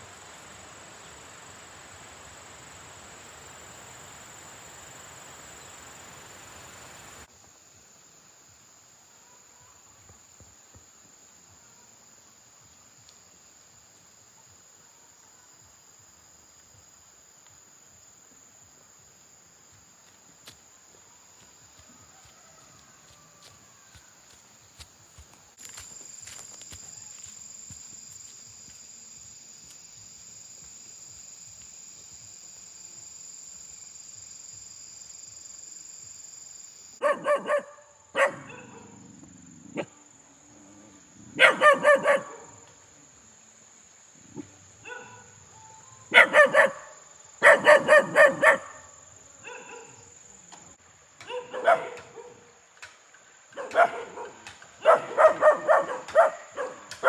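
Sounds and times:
dog barking: 37.0s - 39.0s, 41.3s - 42.6s, 44.8s - 45.4s, 46.1s - 50.1s, 51.2s - 52.5s, 53.5s - 57.0s.

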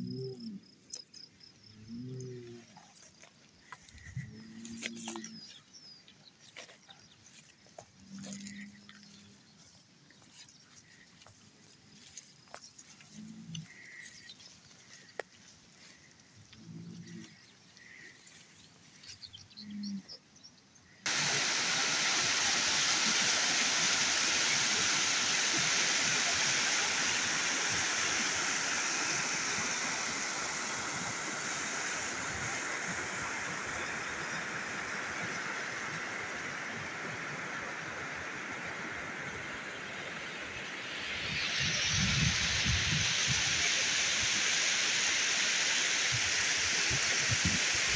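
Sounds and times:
stream rushing over stones: 21.0s - 47.9s.

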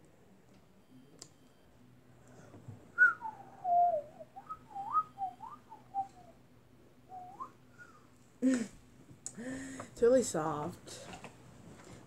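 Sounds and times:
person whistling a tune: 3.0s - 6.4s, 7.1s - 8.0s.

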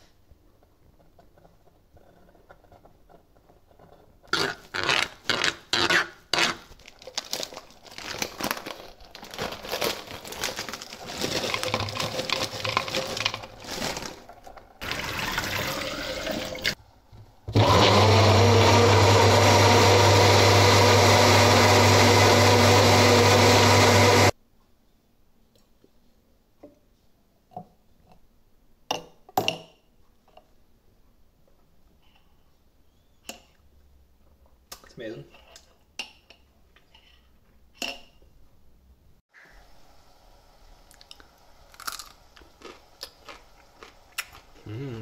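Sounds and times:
frozen fruit clattering into cup: 6.8s - 15.8s
liquid being poured: 11.1s - 16.8s
blender motor humming: 17.5s - 24.3s.

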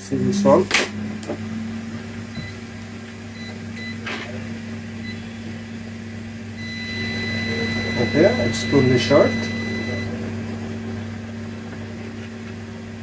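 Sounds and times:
low electrical hum: 0.0s - 13.0s
continuity beeper high tone: 6.6s - 10.2s.

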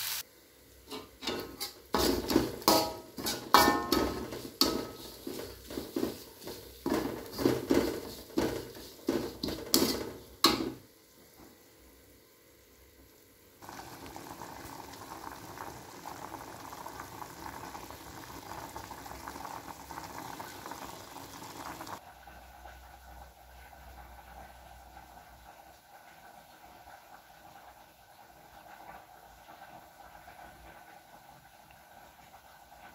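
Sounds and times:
liquid boiling in a pot: 0.0s - 32.9s
metal spatula scraping a wok: 0.9s - 10.7s.

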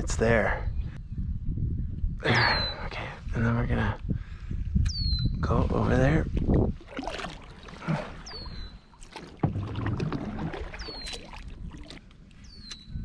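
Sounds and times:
paddle strokes splashing: 6.3s - 12.7s.

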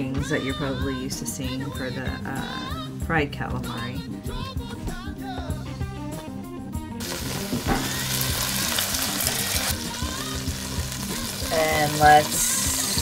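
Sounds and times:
background music: 0.0s - 13.0s
chicken sizzling in oil: 7.0s - 13.0s.

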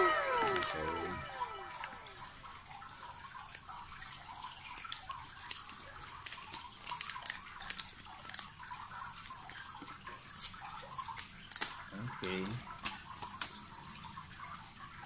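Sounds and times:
plastic sleeve crinkling: 4.8s - 9.6s.

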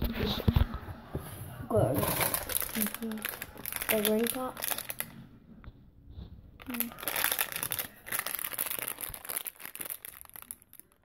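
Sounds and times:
plastic wrapper crinkling: 2.0s - 5.2s, 6.6s - 11.0s.

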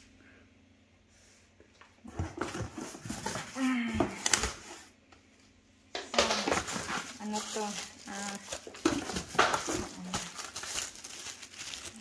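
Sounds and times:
plastic wrapping crinkling: 6.1s - 12.0s.

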